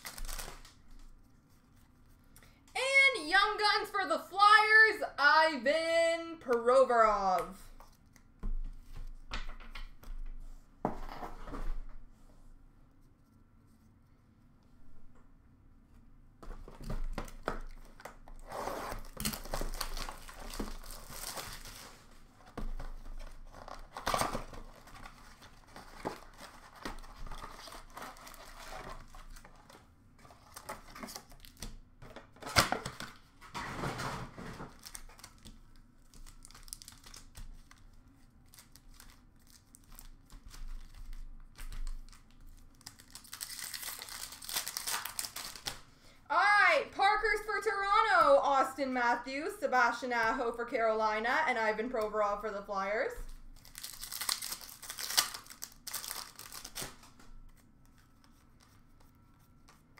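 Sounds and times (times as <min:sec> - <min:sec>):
card pack wrappers tearing and crinkling: 0:00.0 - 0:00.9, 0:17.4 - 0:22.2, 0:22.9 - 0:31.7, 0:34.5 - 0:45.9, 0:53.6 - 0:57.2.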